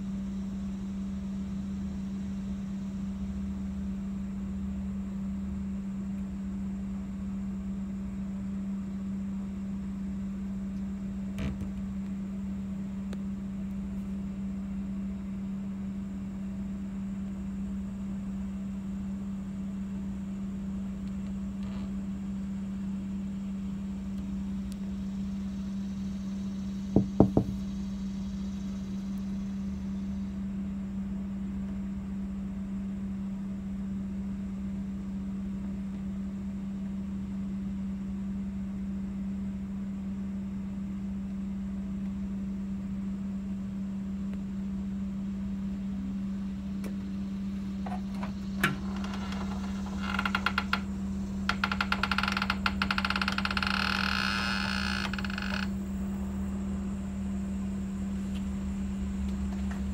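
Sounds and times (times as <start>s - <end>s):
low machine hum: 0.0s - 59.9s
sharp knocks: 27.0s - 27.6s.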